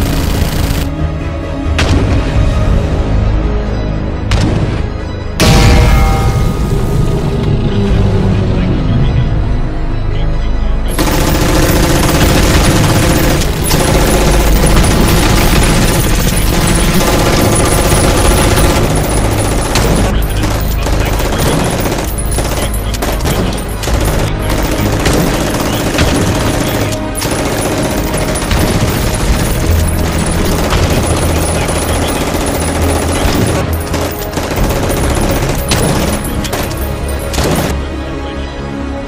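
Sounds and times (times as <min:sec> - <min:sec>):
rapid gunfire: 0:00.0 - 0:00.9, 0:10.9 - 0:37.8
film soundtrack music: 0:00.0 - 0:39.0.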